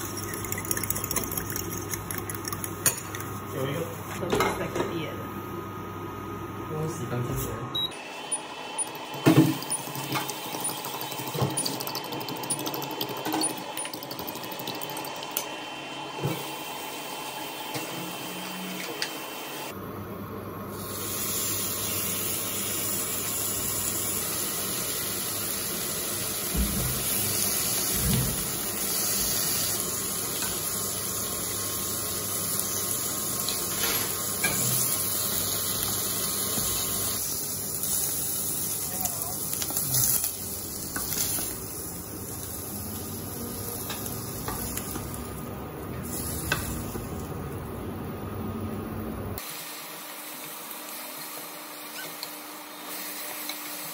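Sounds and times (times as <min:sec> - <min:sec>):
bacon sizzling in a pan: 0:20.8 - 0:45.4.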